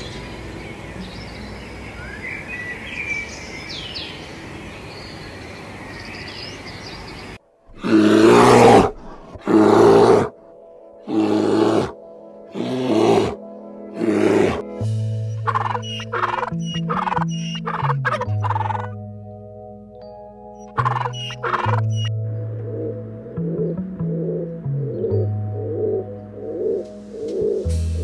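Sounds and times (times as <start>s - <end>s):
bird chirps: 0.0s - 7.4s, 15.2s - 19.0s, 20.5s - 22.1s
animal calling loudly: 7.7s - 10.3s, 11.1s - 13.4s, 15.4s - 19.0s, 20.7s - 22.1s.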